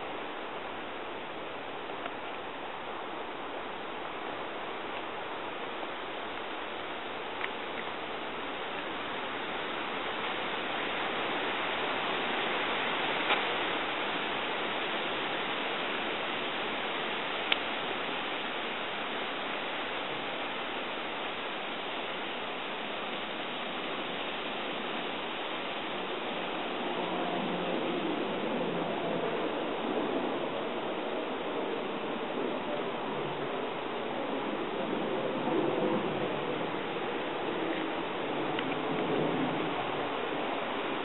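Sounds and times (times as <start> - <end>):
wind through foliage: 0.0 - 41.0
faint clicks: 17.5 - 17.7, 38.5 - 38.8.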